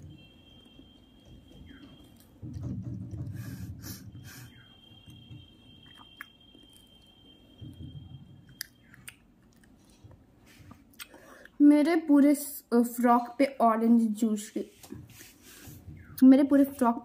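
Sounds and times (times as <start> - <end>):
close-up sticky chewing: 1.6 - 3.5, 5.8 - 7.1, 8.5 - 11.5.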